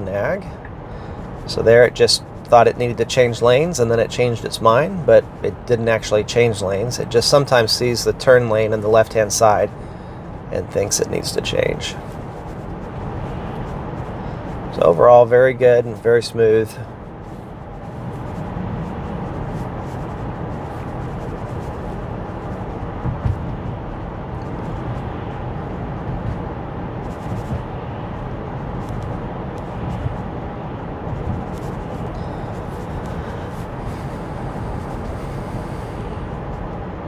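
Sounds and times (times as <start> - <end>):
road and tyre noise inside car: 0.0 - 37.0
faint bumps: 16.7 - 36.9.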